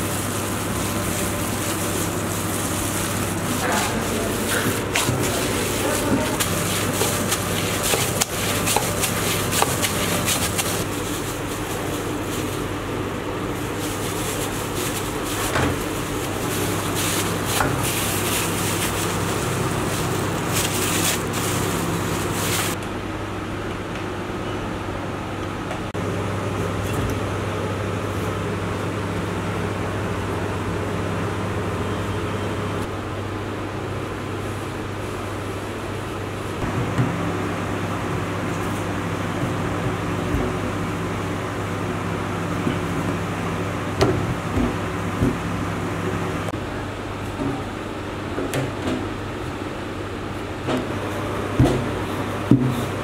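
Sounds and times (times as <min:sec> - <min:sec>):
plastic gloves crinkling: 0:00.0 - 0:22.8
low machine hum: 0:00.0 - 0:53.0.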